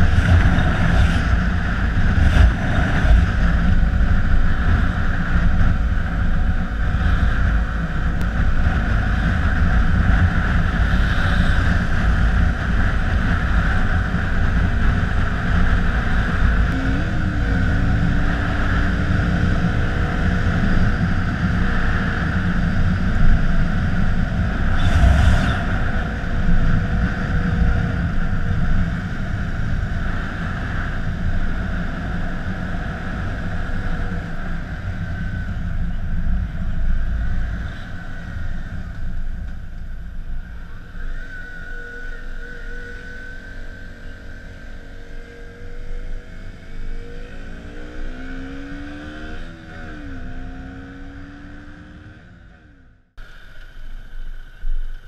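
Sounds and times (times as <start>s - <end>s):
wind rushing: 0.0s - 6.0s, 23.7s - 30.8s
motorcycle engine running: 0.0s - 55.0s.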